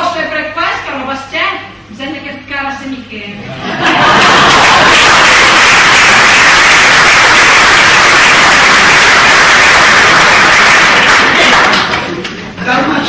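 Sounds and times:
audience applause: 0:03.9 - 0:12.4.

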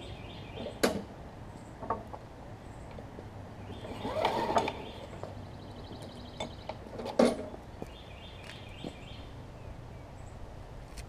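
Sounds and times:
mower engine turning over: 0:03.8 - 0:05.2.

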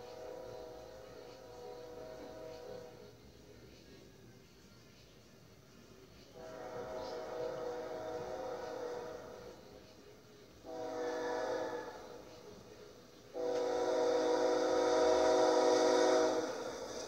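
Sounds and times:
locomotive air horn blasts: 0:00.0 - 0:03.0, 0:06.4 - 0:09.6, 0:10.6 - 0:12.4, 0:13.3 - 0:17.0.

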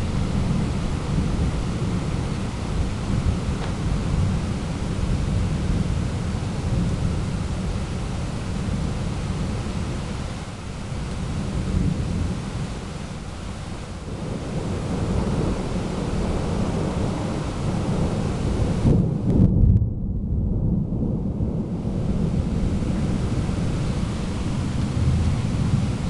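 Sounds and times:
rain hissing: 0:00.0 - 0:19.4, 0:21.6 - 0:26.0
thunder rumbling: 0:00.0 - 0:26.0.

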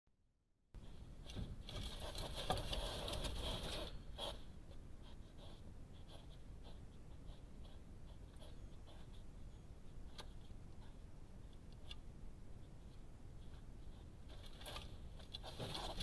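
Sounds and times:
hedgehog scuffling and rustling: 0:01.3 - 0:04.4, 0:12.7 - 0:16.0.

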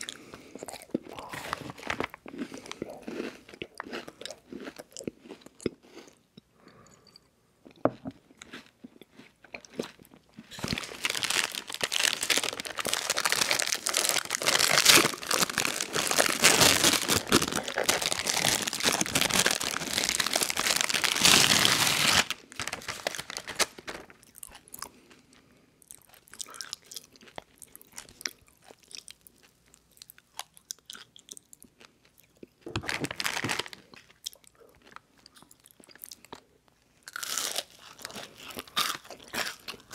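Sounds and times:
plastic wrapper crinkling: 0:01.3 - 0:02.3, 0:10.5 - 0:24.3, 0:32.7 - 0:33.9.

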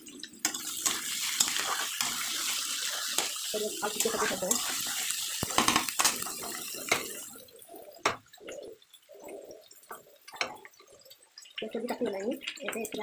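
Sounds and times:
vegetables sizzling in oil: 0:00.0 - 0:13.0
metal spatula scraping pan: 0:00.4 - 0:07.2.

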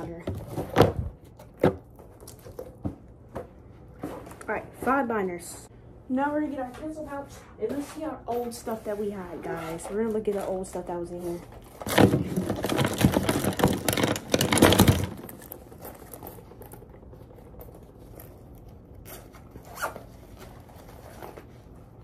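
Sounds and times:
rummaging through pouch: 0:11.4 - 0:22.0
zipper pulled open: 0:19.0 - 0:21.0.

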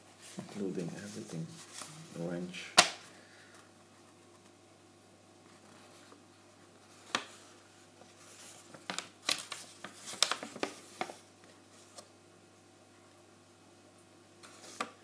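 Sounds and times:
paper rustling and crinkling: 0:00.2 - 0:03.0, 0:06.9 - 0:12.1.

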